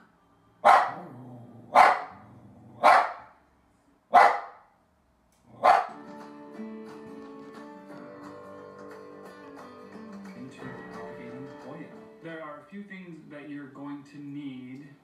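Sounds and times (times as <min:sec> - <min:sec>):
dog barking: 0:00.6 - 0:01.1, 0:01.7 - 0:02.2, 0:02.8 - 0:03.4, 0:04.1 - 0:04.7, 0:05.6 - 0:06.0
guitar music: 0:05.7 - 0:12.6.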